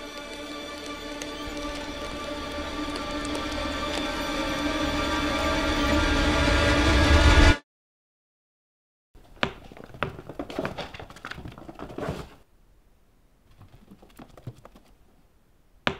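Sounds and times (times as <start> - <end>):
tense horror film score: 0.0 - 7.6.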